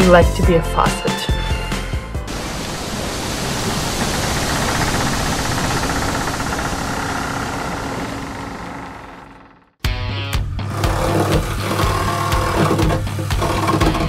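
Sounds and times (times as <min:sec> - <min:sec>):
reciprocating saw cutting metal: 0:10.6 - 0:14.0.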